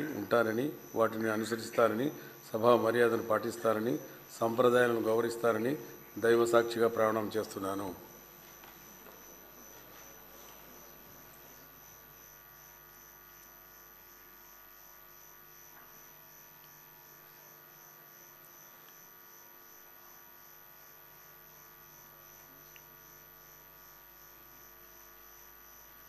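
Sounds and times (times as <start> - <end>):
low background hiss: 0.0 - 20.5
faint electrical mains hum: 0.0 - 26.0.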